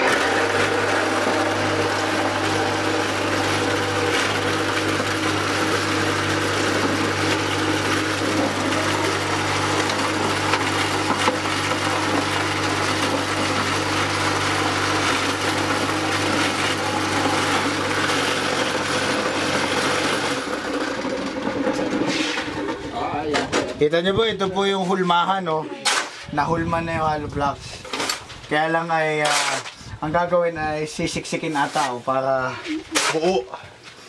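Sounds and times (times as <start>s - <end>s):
block making machine humming: 0.0s - 23.0s.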